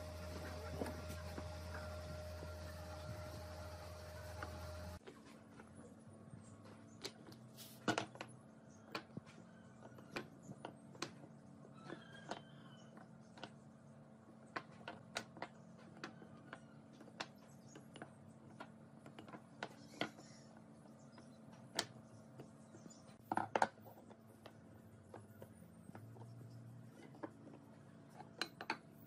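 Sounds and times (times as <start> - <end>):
faint steady hum: 0.0 - 5.0
wooden blocks clicking and knocking: 6.7 - 29.0.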